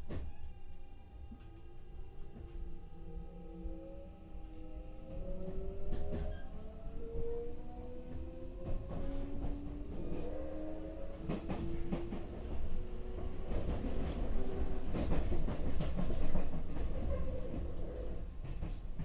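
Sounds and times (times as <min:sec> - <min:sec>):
electric train motor whine: 0:00.3 - 0:08.5
train wheels rumbling: 0:05.2 - 0:19.0.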